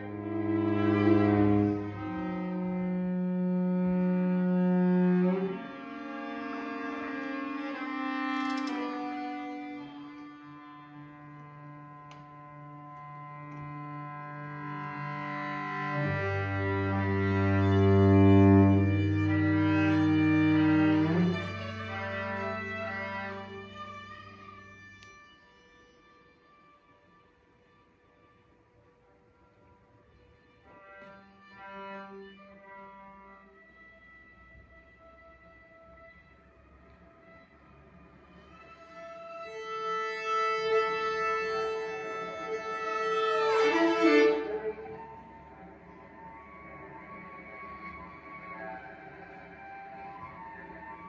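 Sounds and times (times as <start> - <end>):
low sustained cello note: 0.0 - 25.0, 38.3 - 51.0
viola and cello long notes: 0.0 - 51.0.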